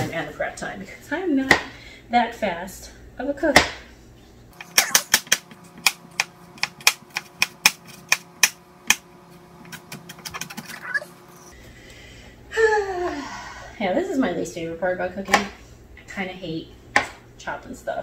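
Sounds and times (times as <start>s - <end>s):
knife chopping on plastic board: 15.3s - 15.6s, 17.0s - 17.2s.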